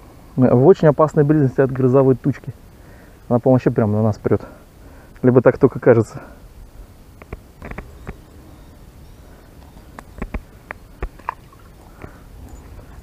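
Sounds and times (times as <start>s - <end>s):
low steady rumble: 0.0s - 13.0s
handling clicks and taps: 7.2s - 8.2s, 9.6s - 11.4s.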